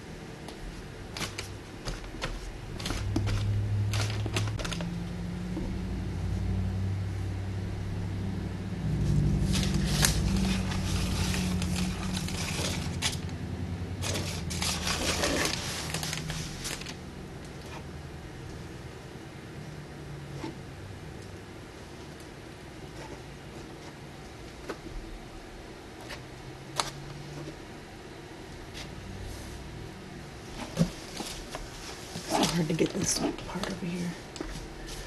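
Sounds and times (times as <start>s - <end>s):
low hum: 2.8s - 22.2s
paint stick scraping canvas: 9.0s - 13.2s, 14.0s - 16.9s, 22.9s - 24.0s.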